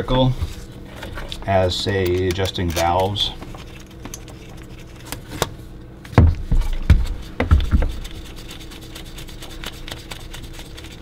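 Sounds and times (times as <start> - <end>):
faint steady hum: 0.0 - 11.0
dull knocks and bumps: 6.2 - 8.0.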